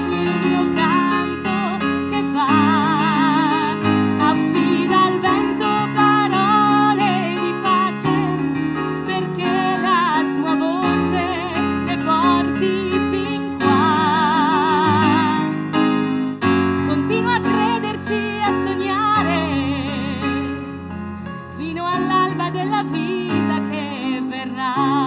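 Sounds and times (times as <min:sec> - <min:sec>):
woman singing with vibrato: 0:00.0 - 0:15.6, 0:16.8 - 0:20.5, 0:21.6 - 0:25.0
keyboard accompaniment: 0:00.0 - 0:25.0.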